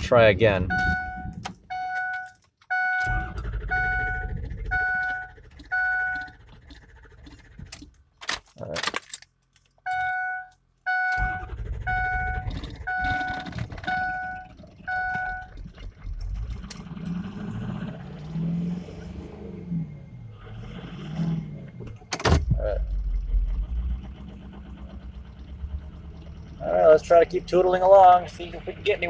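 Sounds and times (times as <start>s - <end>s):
engine running: 0.0s - 8.2s, 10.8s - 29.0s
diesel engine cranking: 0.0s - 29.0s
warning chime beeping: 0.6s - 6.3s, 9.9s - 15.5s.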